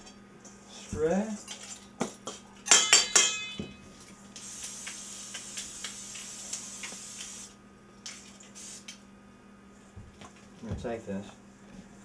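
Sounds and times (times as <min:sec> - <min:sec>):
aerosol spray hissing: 0:04.4 - 0:07.6, 0:08.6 - 0:08.9.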